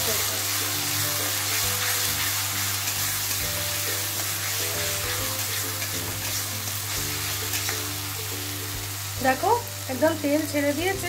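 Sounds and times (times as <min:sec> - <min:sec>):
paste sizzling in hot oil: 0:00.0 - 0:11.0
metal spatula stirring: 0:00.5 - 0:08.0.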